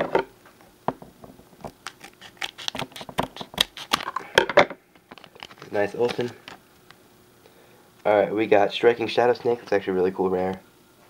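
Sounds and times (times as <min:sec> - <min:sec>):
foil wrapper crinkling: 0:01.6 - 0:04.2, 0:05.0 - 0:06.6.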